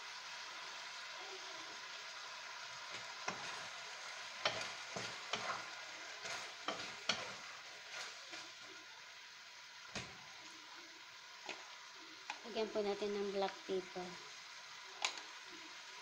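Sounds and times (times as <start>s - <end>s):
food sizzling in a wok: 0.0s - 16.0s
utensil scraping a pan: 3.2s - 3.8s, 4.4s - 8.5s.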